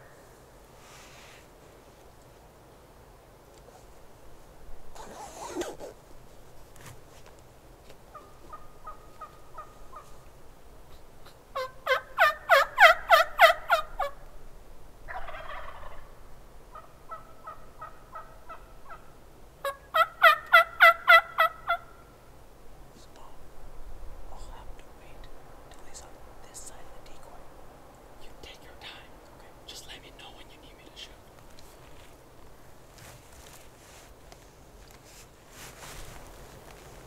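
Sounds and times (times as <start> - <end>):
turkeys gobbling: 8.1 - 10.1, 11.2 - 14.2, 15.1 - 16.1, 16.7 - 21.9.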